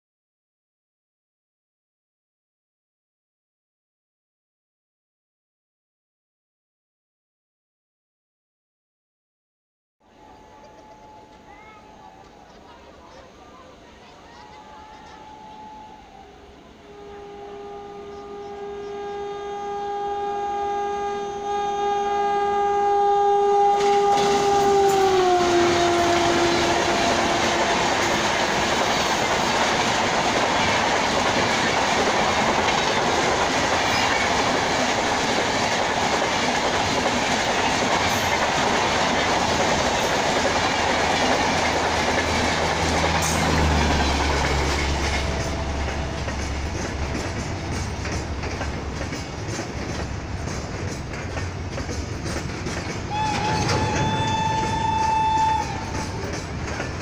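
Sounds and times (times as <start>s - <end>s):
locomotive horn: 10.0s - 12.3s, 14.3s - 30.8s, 41.6s - 48.6s, 53.1s - 57.0s
low rumble of freight train: 10.0s - 57.0s
train wheels clacking on rail joints: 23.8s - 57.0s.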